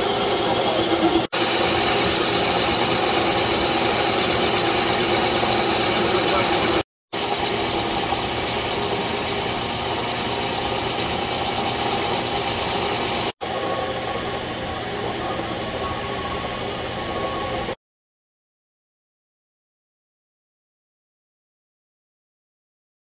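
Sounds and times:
hissing cutting noise: 0:00.0 - 0:17.8
metal lathe humming: 0:00.0 - 0:17.8.

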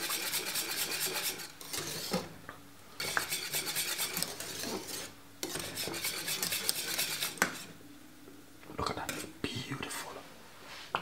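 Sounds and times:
whisk scraping a metal pot: 0:00.0 - 0:02.3, 0:03.0 - 0:07.8.

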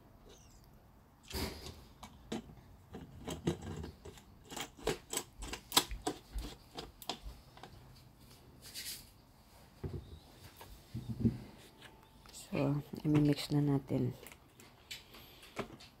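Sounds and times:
plastic clicks and knocks: 0:02.0 - 0:07.7.

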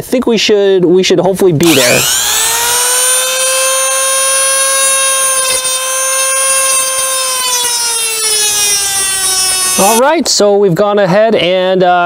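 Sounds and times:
cut-off wheel cutting steel rod: 0:01.6 - 0:10.0.

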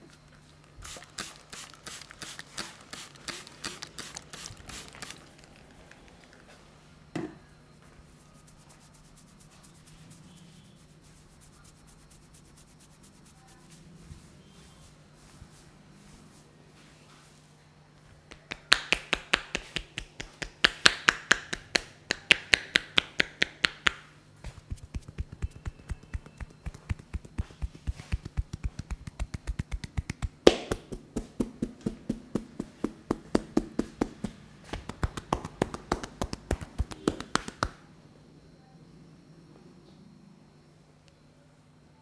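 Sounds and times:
hands tapping on head: 0:18.3 - 0:37.8.

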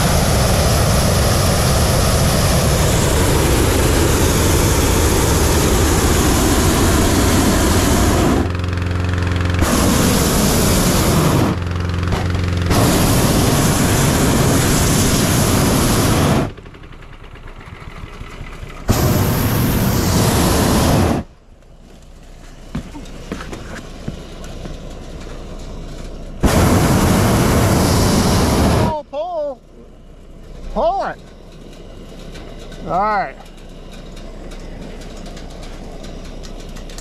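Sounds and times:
propane burner blasts: 0:00.0 - 0:37.0.

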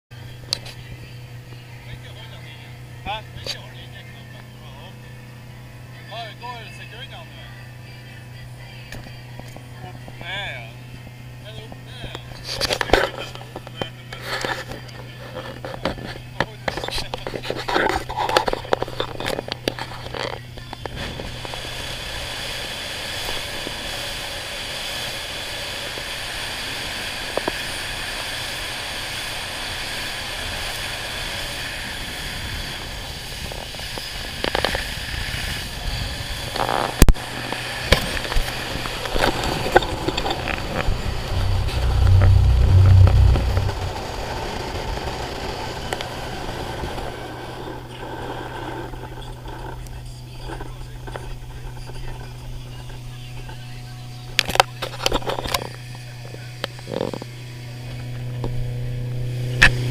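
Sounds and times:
speedboat engine drone: 0:00.1 - 0:59.9
loud low rumble: 0:38.8 - 0:45.1.

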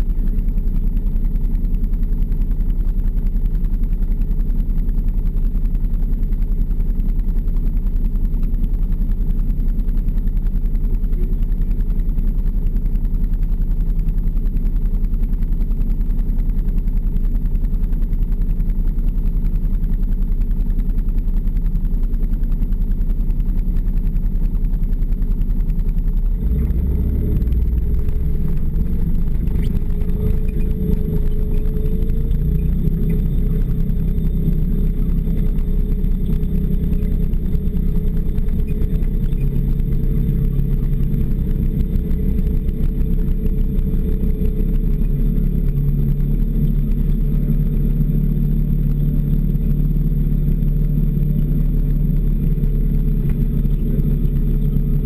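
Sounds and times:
snowmobile engine: 0:26.2 - 0:55.0.

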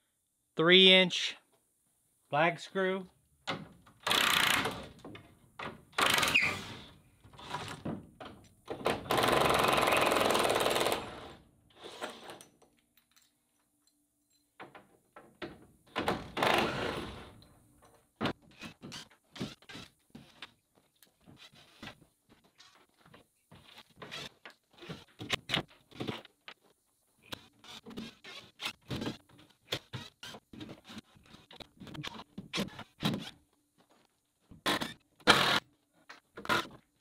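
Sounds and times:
knocks of wood and tools: 0:14.6 - 0:16.6.

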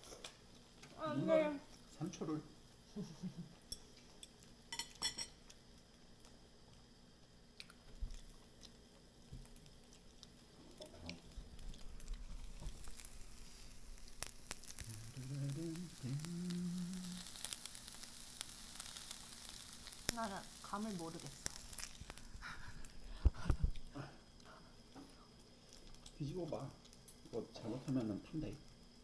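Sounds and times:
batter sizzling in a pan: 0:00.0 - 0:29.0
person humming: 0:14.8 - 0:17.5.

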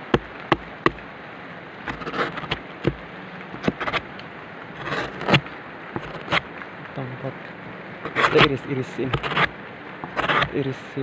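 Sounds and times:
blade scraping: 0:01.9 - 0:03.0, 0:03.6 - 0:04.0, 0:04.8 - 0:06.4, 0:08.0 - 0:10.6.

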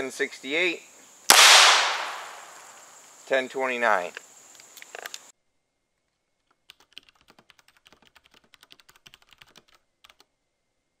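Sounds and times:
faint keyboard typing: 0:06.4 - 0:10.3.

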